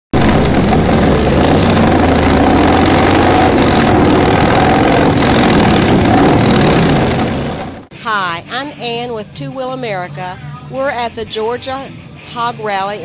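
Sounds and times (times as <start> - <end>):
motorcycle engine running: 0.2 - 7.9.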